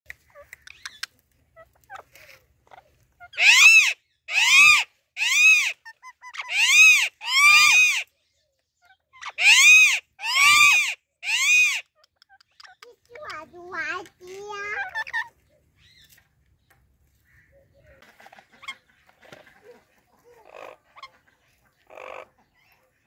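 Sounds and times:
parakeet shrill calls: 2.7s - 8.1s, 8.8s - 12.8s.

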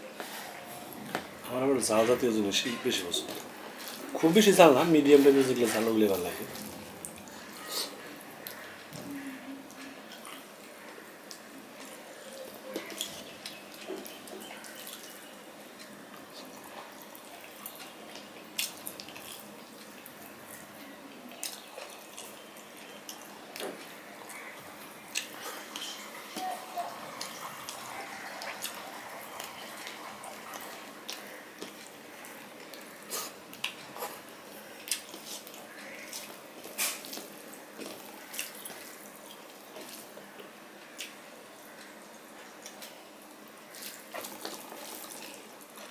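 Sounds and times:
fingers mixing wet rice and curry: 9.8s - 43.0s
chewing and lip smacks: 10.1s - 12.0s, 15.8s - 26.4s, 27.1s - 41.2s.

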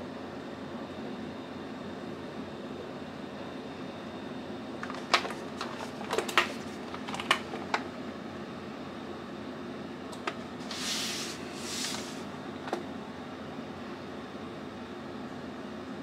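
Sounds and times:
soft brushing swishes: 10.7s - 12.2s.

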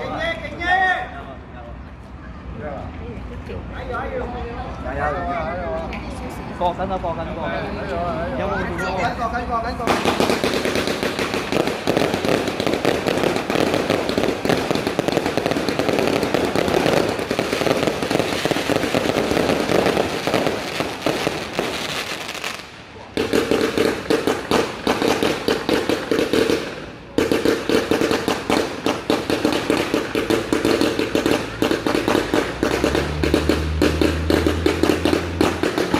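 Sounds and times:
fireworks crackle: 9.7s - 35.9s
fireworks launches and bursts: 9.8s - 35.9s.

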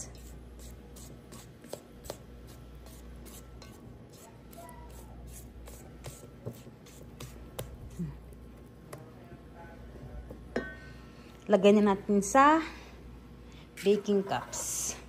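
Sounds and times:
spatula scraping batter in bowl: 0.0s - 8.6s, 13.8s - 15.0s.

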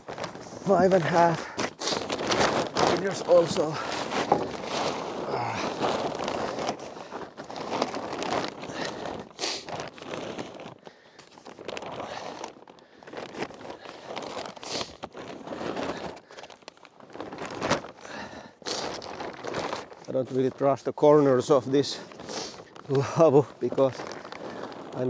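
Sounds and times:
plastic tarp crinkling: 0.0s - 25.0s.

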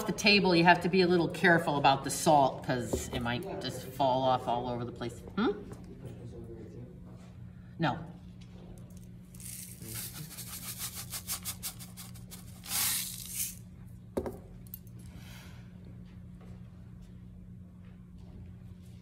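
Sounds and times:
salt grains rattling in canister: 9.3s - 13.6s
canister set down on table: 14.2s - 14.5s.

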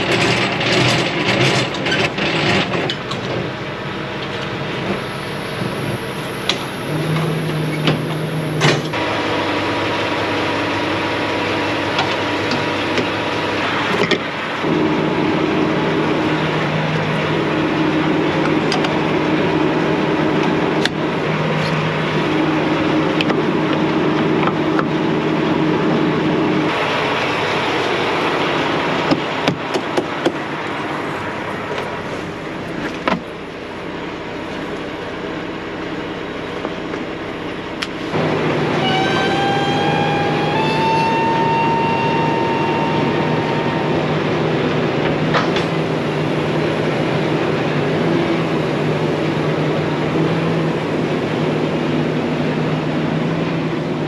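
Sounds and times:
diesel truck engine idling: 0.0s - 54.0s
rising whistle: 38.2s - 46.0s.

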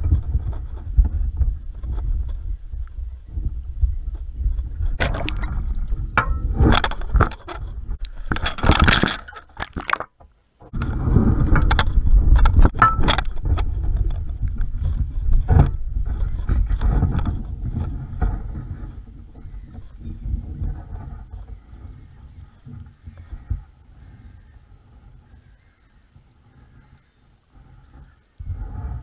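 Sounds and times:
low rumble: 0.0s - 8.7s.

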